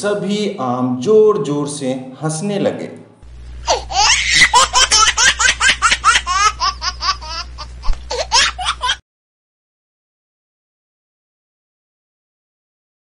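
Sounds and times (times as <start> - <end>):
high-pitched cartoon laughter: 3.6 - 9.0.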